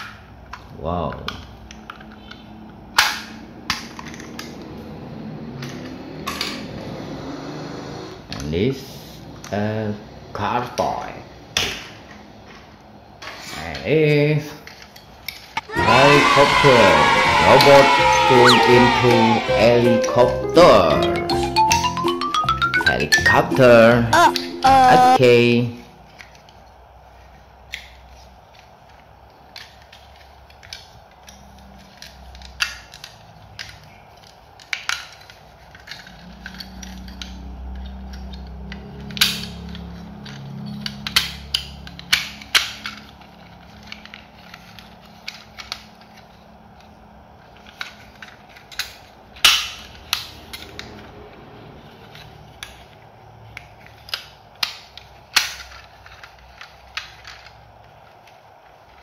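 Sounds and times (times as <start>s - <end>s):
plastic toy parts clicking: 0.0s - 4.8s, 14.6s - 16.7s, 26.1s - 51.1s, 52.0s - 59.0s.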